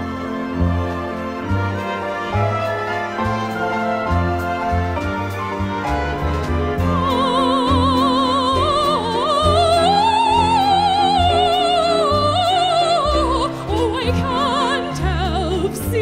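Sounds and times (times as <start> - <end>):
instrumental accompaniment with bass: 0.0 - 16.0
operatic soprano singing: 6.8 - 16.0.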